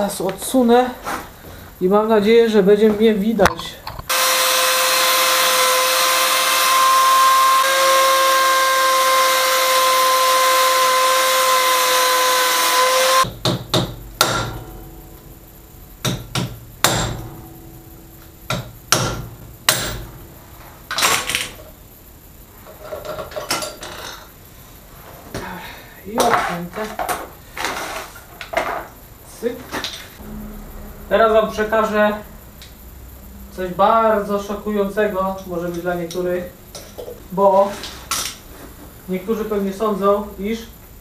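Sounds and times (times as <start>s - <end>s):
angle grinder cutting metal: 4.1s - 13.3s.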